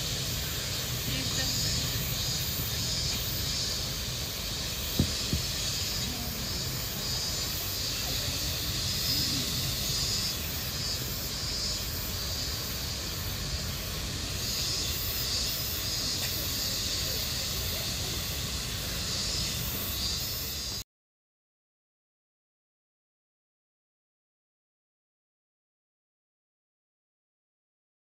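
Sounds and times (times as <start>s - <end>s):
cicada chorus buzzing: 0.0s - 20.8s.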